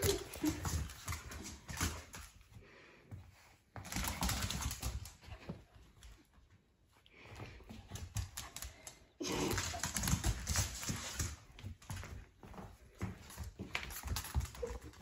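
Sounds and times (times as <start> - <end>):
dog claws scrabbling on tile: 0.0 - 2.4, 3.8 - 6.2, 7.6 - 12.2.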